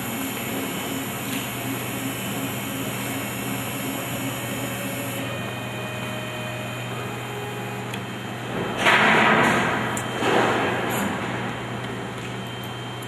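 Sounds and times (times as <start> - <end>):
stepper motors whining: 0.0 - 8.4.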